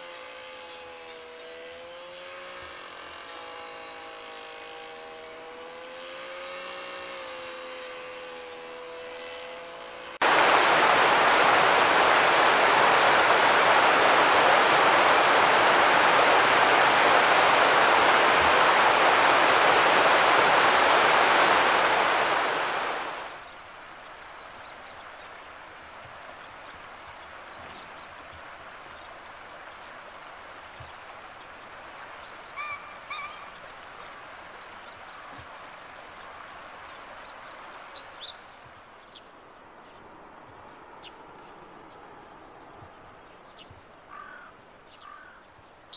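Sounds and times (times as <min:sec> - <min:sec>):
faint droning hum: 0:00.0 - 0:27.4
river water rushing through rapids: 0:10.2 - 0:38.6.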